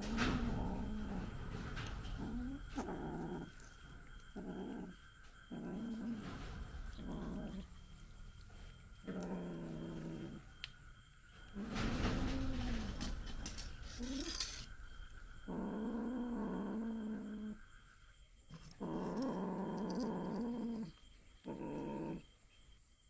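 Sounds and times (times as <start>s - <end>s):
kitten growling: 0.0s - 7.8s, 9.0s - 10.7s, 15.5s - 17.6s, 18.5s - 22.3s.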